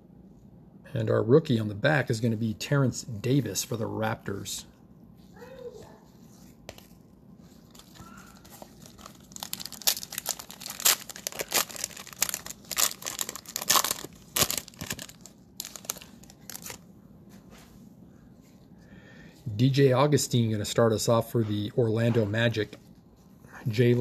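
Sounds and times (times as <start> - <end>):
cellophane wrapper crinkling and tearing: 7.6 - 16.8.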